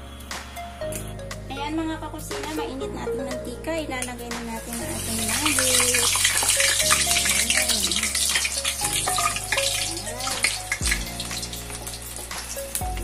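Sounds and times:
background music: 0.0 - 13.0
deep-frying crackling sizzle: 4.5 - 13.0.

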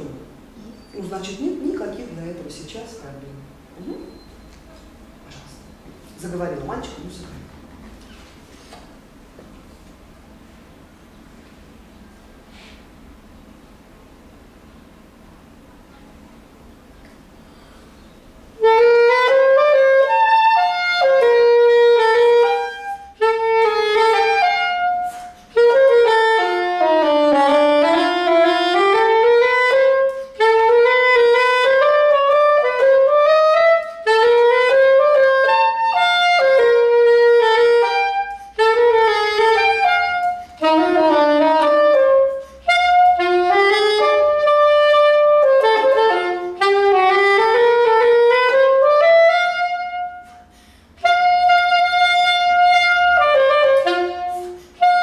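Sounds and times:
breaths: 12.5 - 12.9, 17.4 - 18.3, 50.4 - 51.0
saxophone melody: 18.4 - 55.0.

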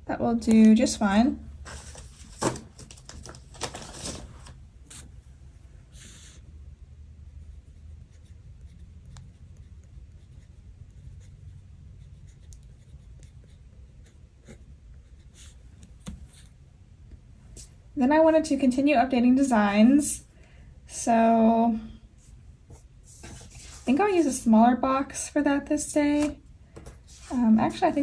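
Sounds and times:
sticker paper rustling: 1.6 - 5.1
pen scratching on paper: 7.2 - 16.6.

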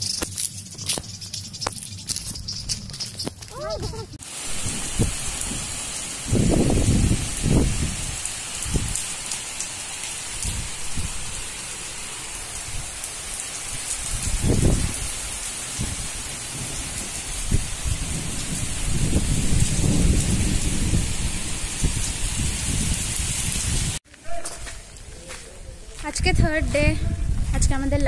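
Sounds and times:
heavy rain pouring: 3.5 - 24.0.

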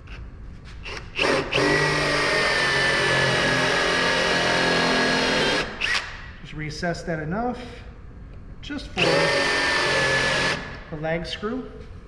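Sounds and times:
cordless drill boring wood: 1.2 - 6.1, 9.0 - 10.7.

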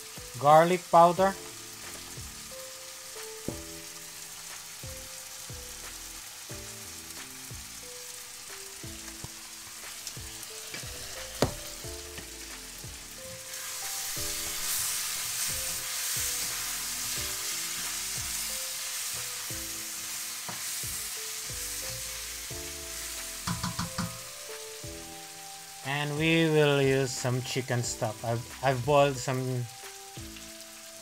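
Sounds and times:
chicken sizzling in a wok: 0.0 - 31.0
spatula stirring in wok: 13.5 - 22.3, 23.0 - 24.2.

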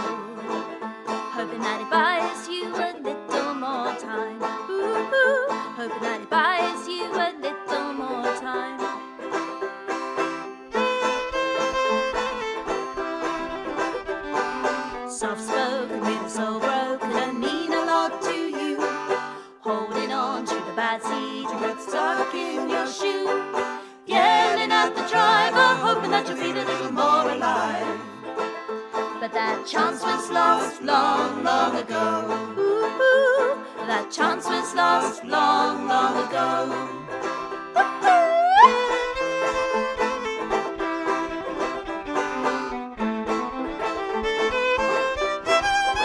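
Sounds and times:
person singing: 0.0 - 0.7, 1.3 - 8.9, 14.6 - 28.3, 29.2 - 37.2, 37.8 - 39.0
plucked string instruments: 0.0 - 46.0.

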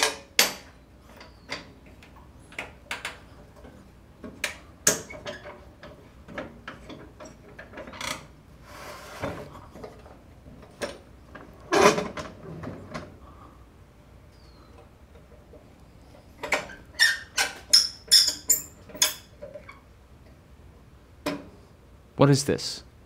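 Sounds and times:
metal scrape: 8.6 - 9.6.

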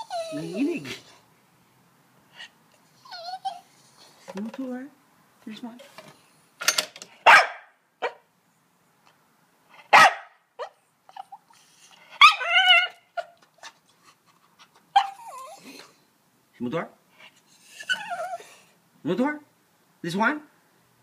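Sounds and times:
dog whine-bark: 7.2 - 8.2, 9.8 - 11.4, 12.1 - 13.3, 15.0 - 15.7
small dog barking: 7.2 - 8.2, 9.9 - 10.8.

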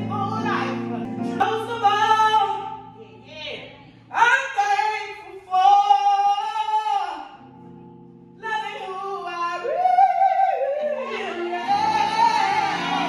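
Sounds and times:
woman singing into a microphone: 8.4 - 13.0.

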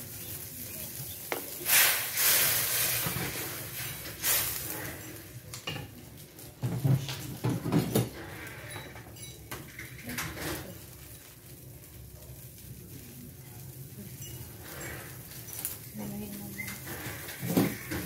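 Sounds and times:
utensil scraping a metal wok: 0.2 - 5.3, 14.0 - 18.0.

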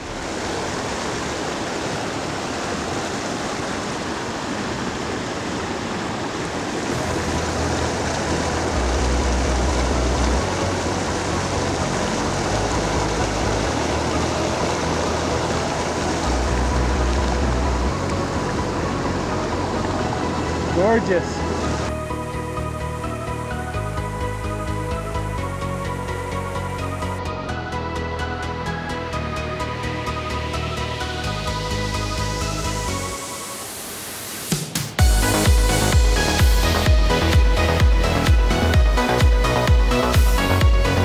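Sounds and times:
creek rushing over rocks: 0.0 - 23.7, 29.6 - 41.0
low rumble: 6.9 - 29.6.

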